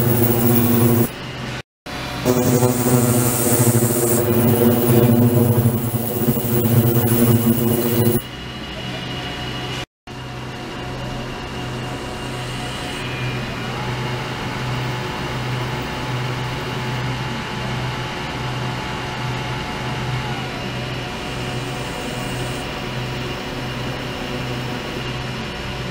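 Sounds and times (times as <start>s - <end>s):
ultrasonic cleaner buzzing hum: 0.0s - 1.1s, 2.0s - 8.2s.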